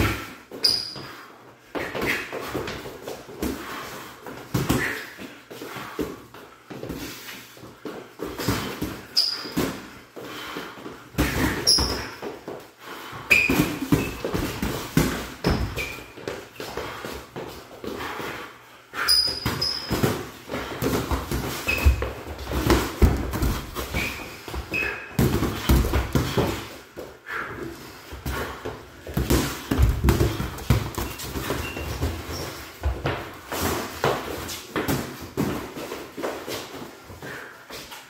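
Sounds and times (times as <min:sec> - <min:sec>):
sneakers squeaking on wood: 0:00.0 - 0:02.8, 0:08.3 - 0:10.0, 0:11.2 - 0:12.5, 0:13.1 - 0:18.4, 0:19.0 - 0:26.7, 0:28.3 - 0:35.6.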